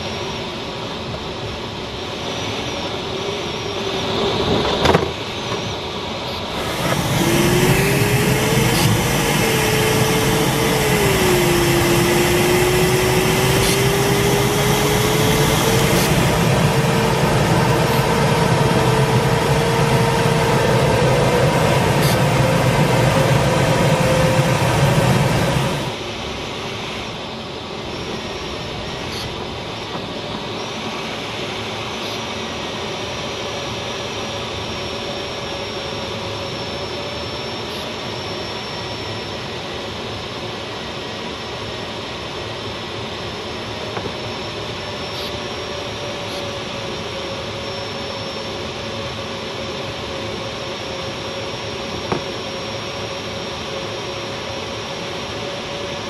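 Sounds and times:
airflow rushing over glider canopy: 0.0s - 31.8s.

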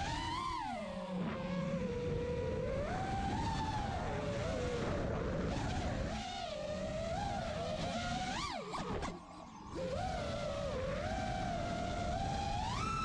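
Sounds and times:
wind rumble on microphone: 0.0s - 13.0s
drone motors whining: 6.5s - 13.0s.

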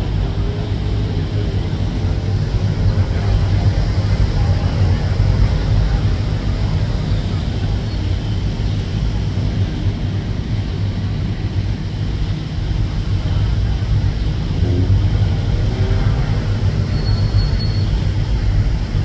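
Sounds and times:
street traffic rumble: 0.0s - 19.0s.

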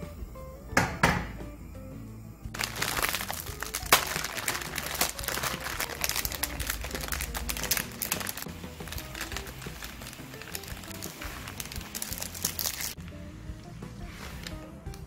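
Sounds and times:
plastic packet crinkling: 2.5s - 13.0s.

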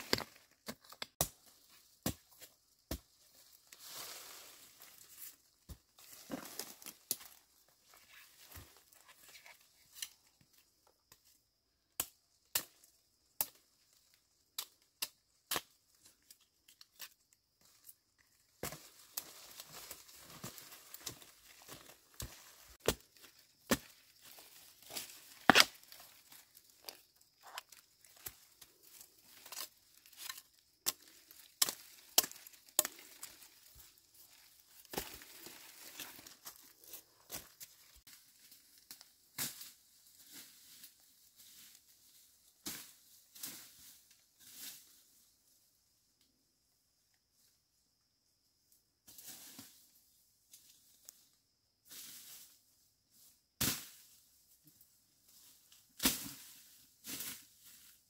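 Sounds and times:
dry leaves rustling and crunching: 18.6s - 39.0s
machete chopping brush: 22.8s - 23.9s, 24.9s - 26.0s, 53.6s - 54.0s.

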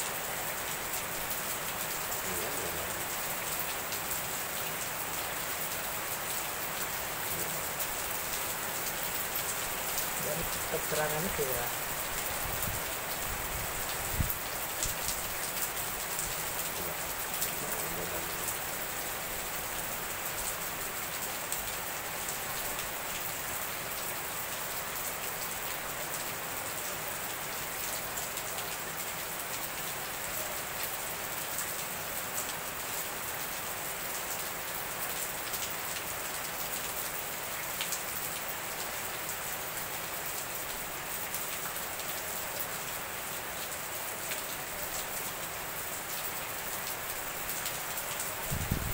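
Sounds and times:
heavy rain hissing: 0.0s - 28.7s, 43.7s - 48.9s.

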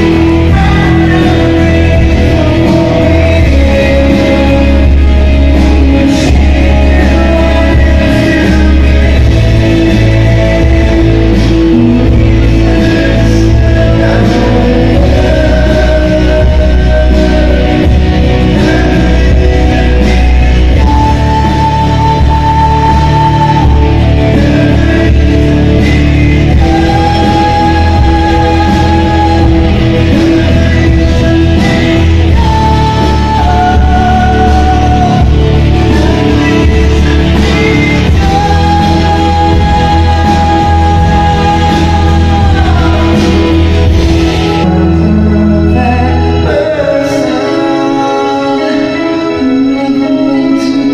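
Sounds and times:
loud rock music: 0.0s - 50.9s
man singing into microphone: 0.0s - 50.9s.

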